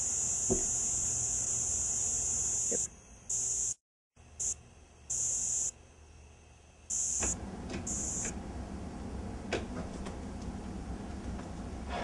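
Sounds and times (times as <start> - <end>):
insect buzzing: 0.0 - 5.8, 6.8 - 8.3.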